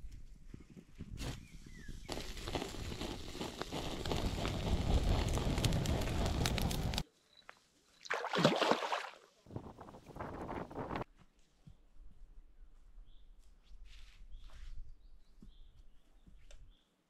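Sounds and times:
water sloshing and splashing: 8.0s - 9.3s.

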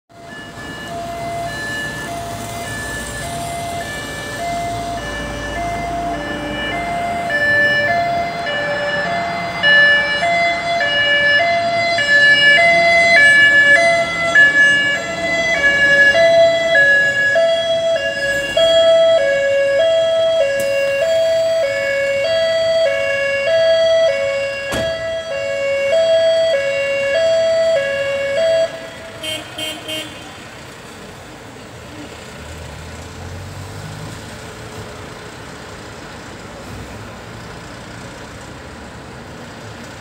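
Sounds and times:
fire engine two-tone siren: 0.1s - 30.6s.

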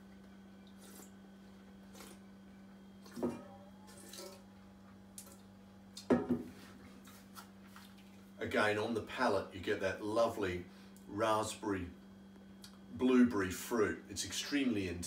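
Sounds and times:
wine sipped and swished: 0.6s - 2.3s.

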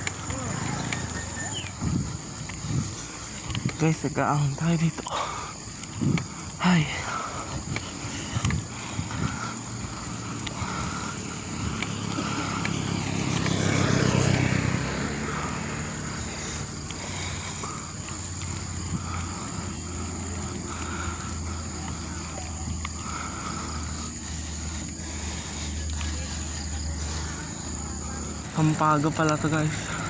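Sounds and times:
bicycle road and wind noise: 0.0s - 30.0s.

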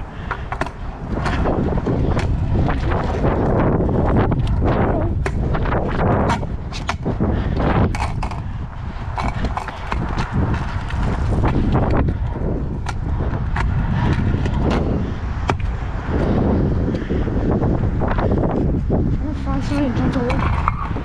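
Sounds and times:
scooter rattling: 0.0s - 17.3s, 19.3s - 21.0s
scooter wheels rumbling on concrete: 0.0s - 21.0s
clicks and knocks over joints: 0.2s - 1.5s, 7.8s - 8.5s, 9.1s - 12.2s.

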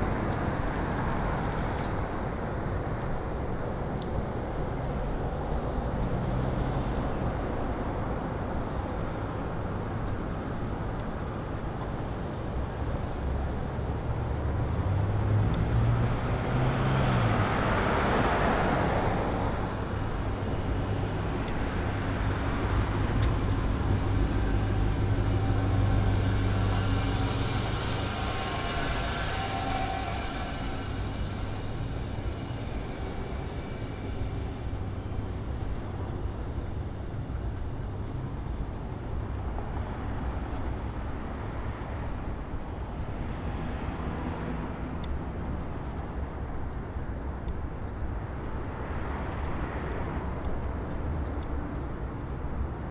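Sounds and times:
low traffic engine rumble: 3.3s - 52.9s
engine humming: 13.7s - 39.6s
vehicle passing close: 14.5s - 36.5s.

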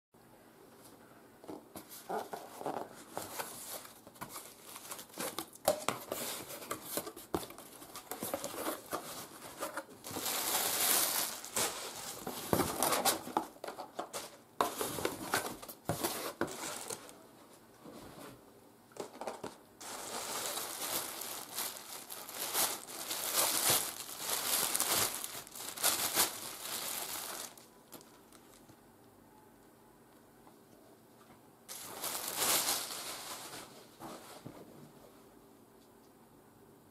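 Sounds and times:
plastic packaging crinkling: 2.7s - 17.2s, 19.8s - 28.8s, 31.7s - 33.7s.

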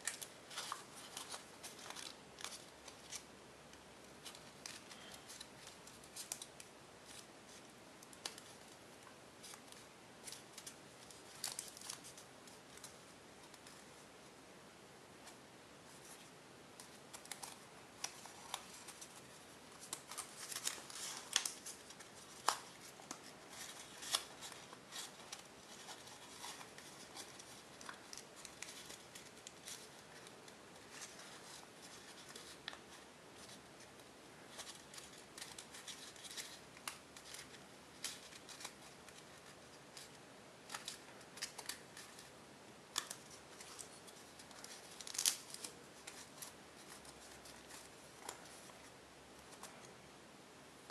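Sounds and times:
foil paper crinkling: 42.9s - 48.7s.

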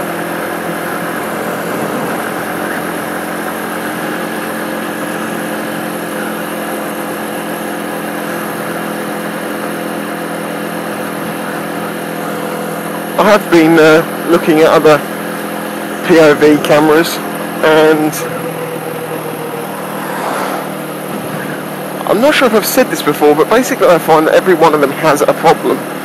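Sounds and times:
motorcycle engine cruising: 0.0s - 26.0s.

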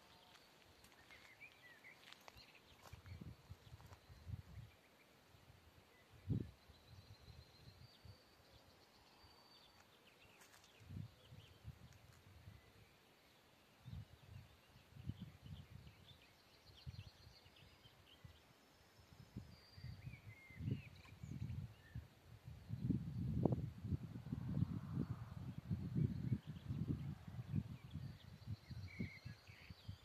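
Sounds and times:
faint birdsong: 0.0s - 30.0s
wind buffeting microphone: 2.8s - 4.8s, 6.2s - 8.0s, 13.8s - 16.1s, 19.2s - 30.0s.

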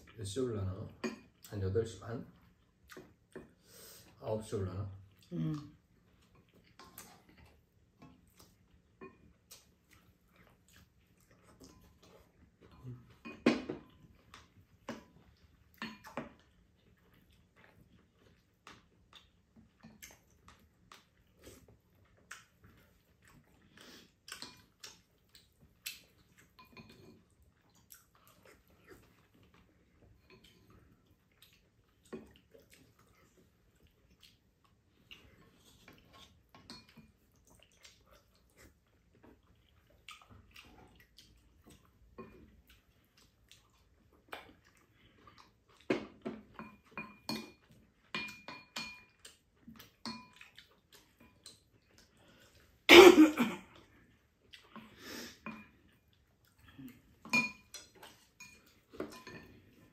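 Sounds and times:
spoons and chopsticks clinking on bowls: 46.5s - 49.2s, 57.2s - 59.6s
person coughing: 52.9s - 53.7s.

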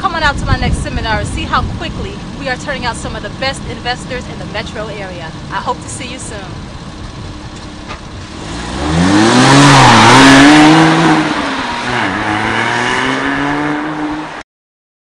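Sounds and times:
sports car accelerating hard: 7.7s - 14.4s.

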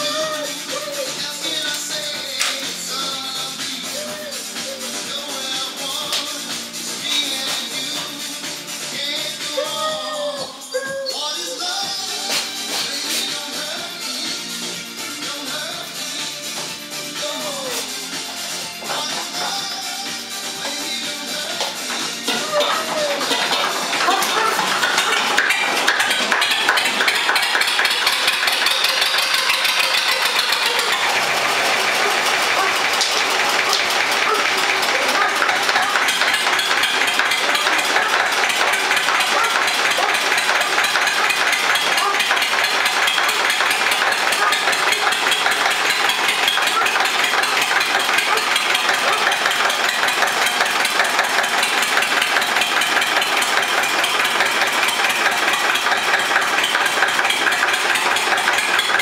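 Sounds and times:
diesel tractor engine idling: 20.6s - 59.0s.

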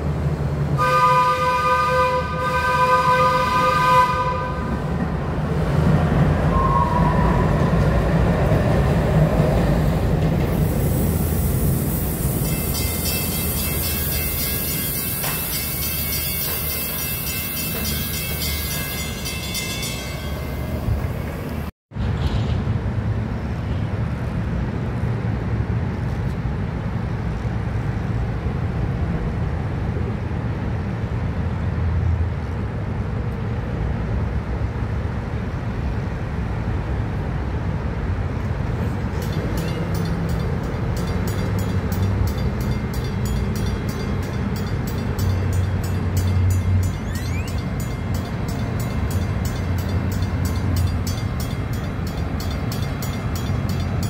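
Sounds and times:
railroad crossing bell ringing: 11.9s - 21.5s, 38.9s - 54.0s.

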